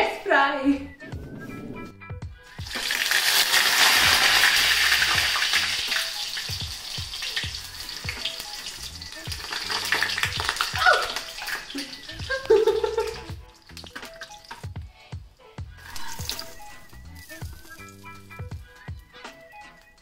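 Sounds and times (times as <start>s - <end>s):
spring rolls sizzling in hot oil: 2.5s - 14.7s.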